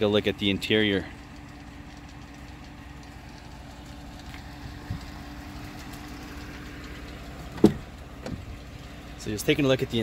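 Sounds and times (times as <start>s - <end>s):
low engine-like hum: 0.0s - 10.0s
car door latch click: 7.6s - 8.4s.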